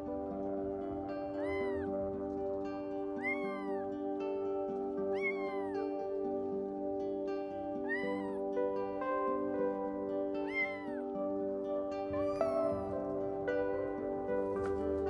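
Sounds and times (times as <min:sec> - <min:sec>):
soft instrumental music: 0:00.0 - 0:15.0
kitten meowing: 0:01.3 - 0:02.0, 0:03.2 - 0:03.9, 0:05.0 - 0:05.9, 0:07.8 - 0:08.4, 0:10.4 - 0:11.1, 0:12.2 - 0:13.0.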